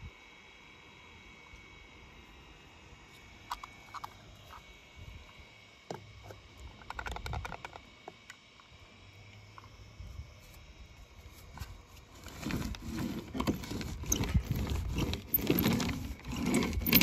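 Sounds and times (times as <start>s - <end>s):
faint high hum: 0.0s - 17.0s
toy bus clicking and knocking: 6.8s - 7.8s.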